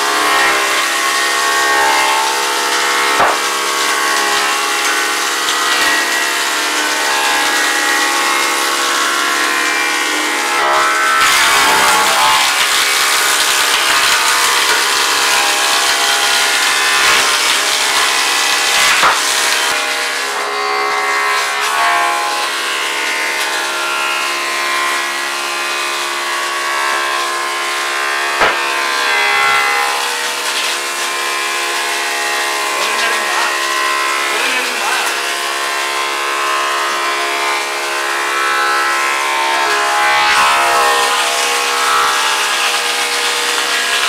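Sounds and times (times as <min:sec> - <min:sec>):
wood planing machine whining: 0:00.0 - 0:44.0.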